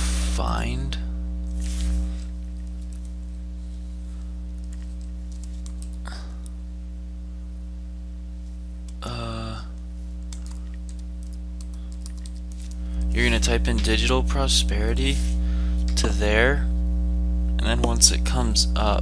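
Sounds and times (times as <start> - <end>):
low electrical hum: 0.0 - 19.0
computer keyboard typing: 2.6 - 3.1, 4.6 - 6.1, 10.3 - 12.8
short vocal sound: 9.0 - 9.8.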